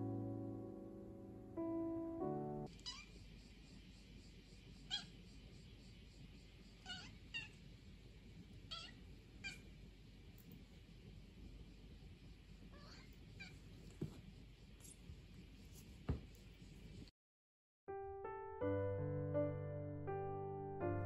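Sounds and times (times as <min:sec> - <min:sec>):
kitten mewing: 0:06.8 - 0:07.5, 0:08.7 - 0:09.6.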